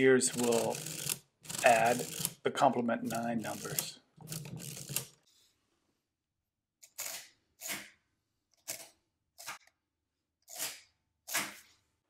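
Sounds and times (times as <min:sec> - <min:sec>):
mechanical calculator clattering: 0:00.0 - 0:02.4, 0:03.0 - 0:05.2.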